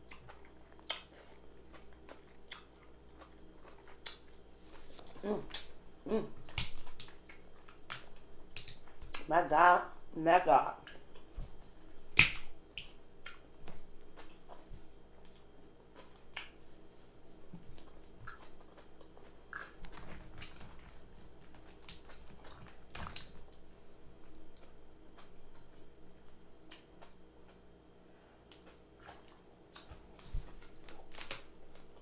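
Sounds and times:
crab shell snapping: 0:07.9 - 0:09.3, 0:12.2 - 0:13.4
wet mouth clicks and smacks: 0:28.5 - 0:29.9.

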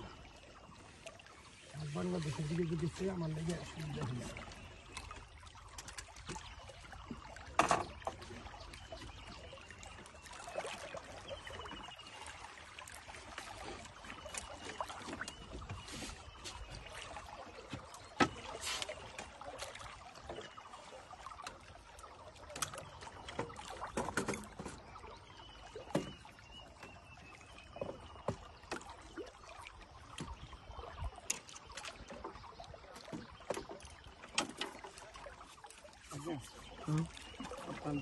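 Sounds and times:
knocks and bumps on boat: 0:06.0 - 0:09.4, 0:13.7 - 0:18.6, 0:22.6 - 0:29.1.

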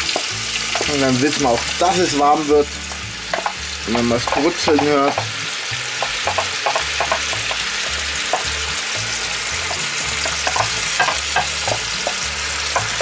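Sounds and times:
wooden spatula scraping and tapping: 0:00.0 - 0:02.2, 0:02.9 - 0:13.0
vegetables sizzling in hot oil: 0:00.0 - 0:13.0.

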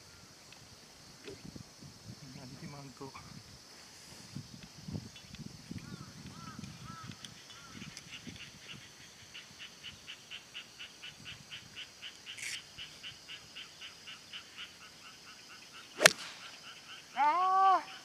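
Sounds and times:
brief hiss: 0:16.0 - 0:16.6.

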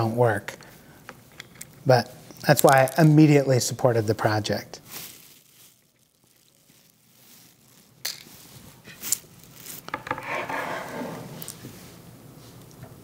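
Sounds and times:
object rubbing and scraping on table: 0:09.9 - 0:11.6.

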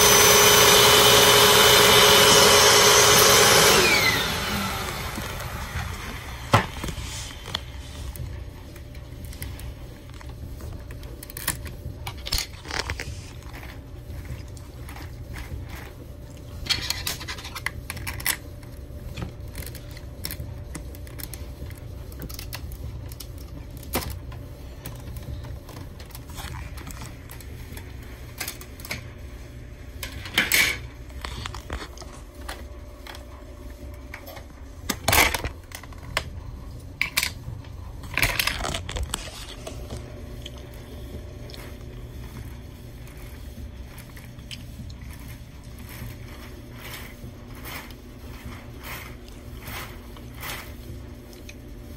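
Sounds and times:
steady low hum: 0:02.5 - 0:51.9
plastic parts clicking and rattling: 0:10.1 - 0:13.7, 0:16.6 - 0:27.5, 0:37.0 - 0:40.0.

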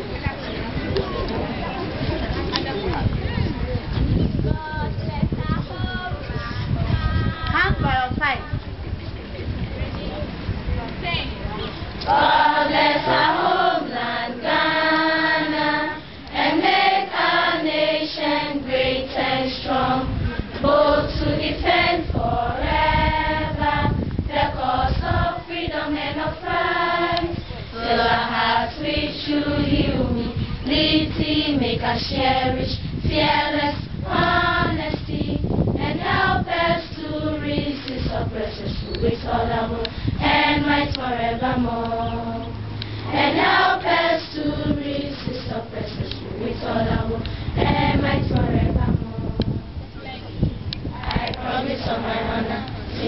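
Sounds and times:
girls singing in unison: 0:12.0 - 0:49.8, 0:50.8 - 0:53.0.

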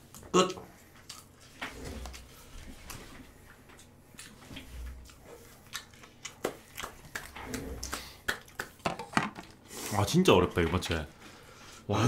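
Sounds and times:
chewing with mouth noises: 0:00.0 - 0:08.8.

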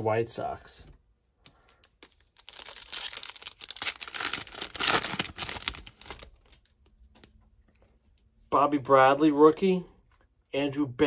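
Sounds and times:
wrapper tearing and crinkling: 0:01.9 - 0:06.7.

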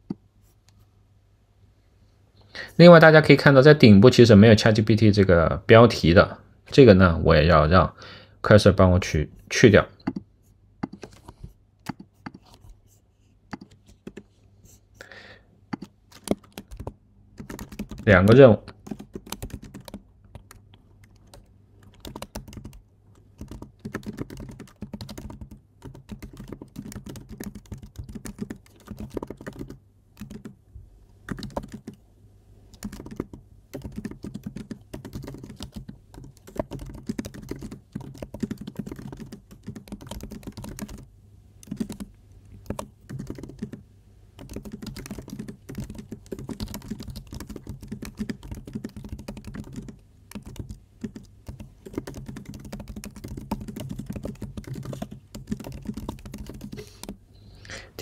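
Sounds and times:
computer keyboard typing: 0:10.0 - 0:12.7, 0:13.5 - 0:14.3, 0:15.7 - 0:30.6, 0:31.3 - 0:32.0, 0:32.7 - 0:43.8, 0:44.4 - 0:57.2.

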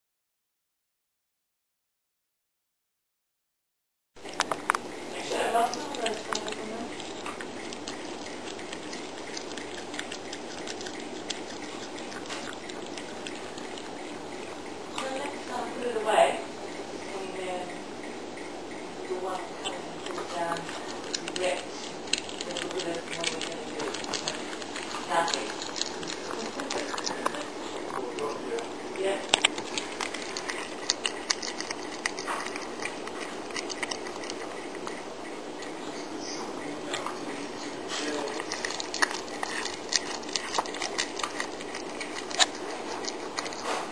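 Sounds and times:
cat chewing raw meat: 0:04.2 - 0:17.2, 0:17.8 - 0:43.9.

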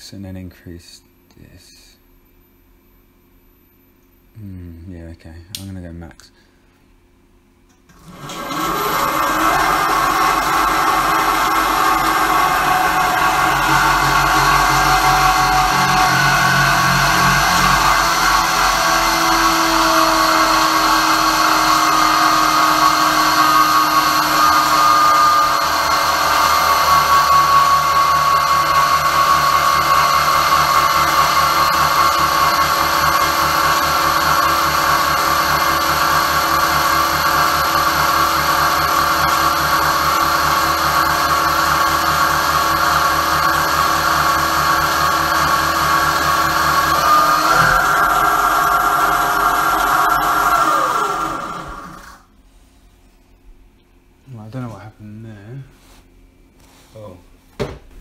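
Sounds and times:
belt and machine noise: 0:07.9 - 0:52.2
electric motor whine: 0:07.9 - 0:52.3.

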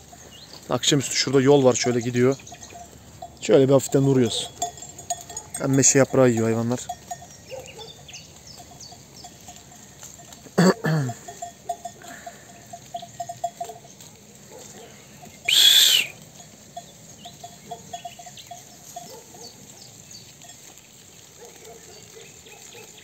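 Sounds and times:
sheep browsing leaves: 0:00.0 - 0:23.0
bell clinking: 0:01.0 - 0:07.8, 0:08.4 - 0:14.1, 0:16.4 - 0:19.2
short falling call: 0:15.5 - 0:16.2.

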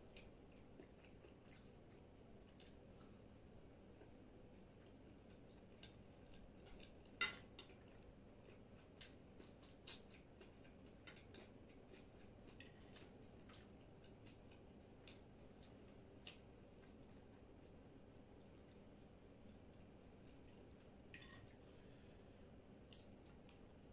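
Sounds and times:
fork clicking and scraping on plate: 0:09.0 - 0:13.7.

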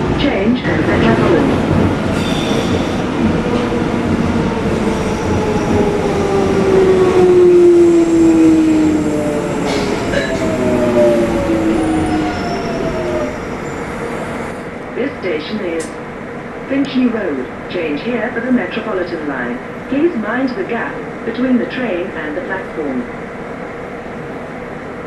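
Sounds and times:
wheels rumbling on rail: 0:00.0 - 0:15.2.

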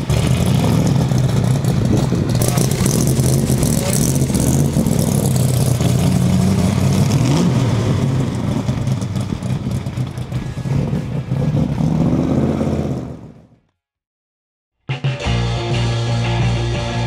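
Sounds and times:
car engine pulling away: 0:00.0 - 0:13.6.

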